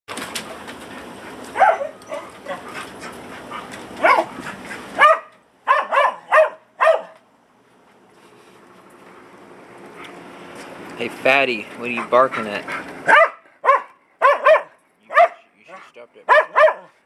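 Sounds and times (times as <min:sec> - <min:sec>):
dog barking: 0:01.6 - 0:02.7, 0:03.5 - 0:04.4, 0:05.0 - 0:07.2, 0:13.0 - 0:17.0.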